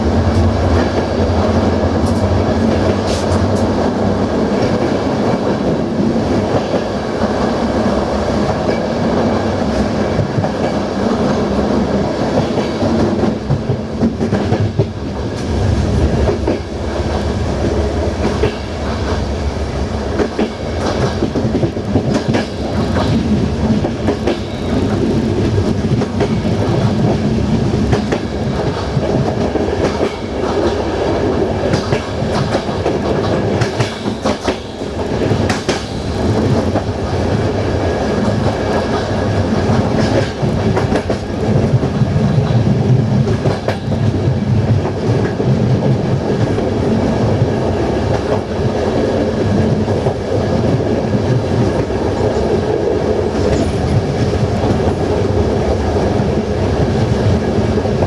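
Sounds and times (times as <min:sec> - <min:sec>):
train wheels rumbling on rails: 0:00.0 - 0:58.0
wheels clicking over rail joints: 0:20.1 - 0:46.6.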